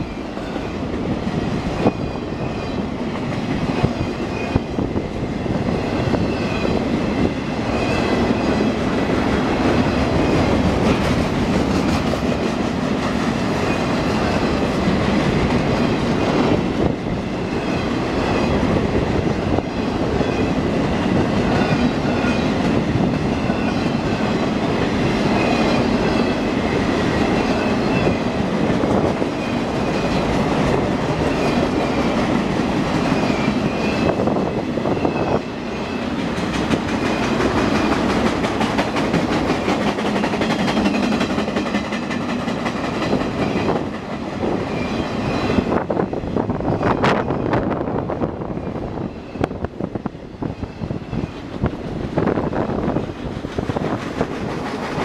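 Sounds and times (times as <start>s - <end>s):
steel wheels rumbling on rail: 0.0s - 55.0s
wheels clacking over rail joints: 35.8s - 45.6s, 52.9s - 55.0s.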